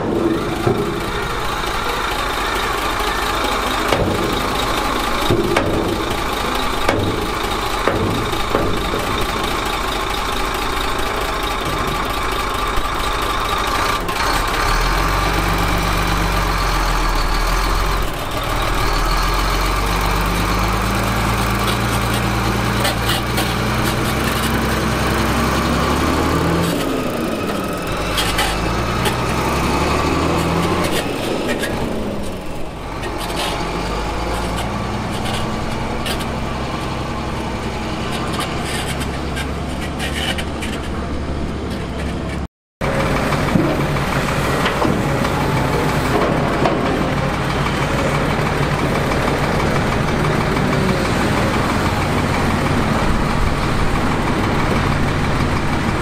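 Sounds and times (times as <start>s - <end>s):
sharp knocks: 0.0s - 2.2s, 3.0s - 9.8s
heavy machinery diesel engine: 0.0s - 56.0s.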